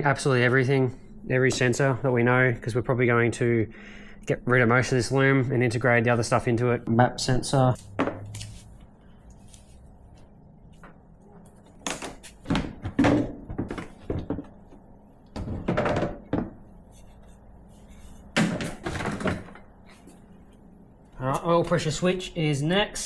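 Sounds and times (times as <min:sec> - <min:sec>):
plastic parts knocking and rattling: 0:11.8 - 0:16.7, 0:18.4 - 0:19.7.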